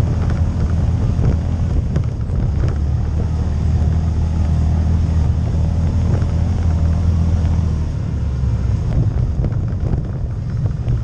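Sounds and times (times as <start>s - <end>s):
all-terrain vehicle engine running: 0.0s - 11.0s
knocks and rattles: 8.9s - 11.0s.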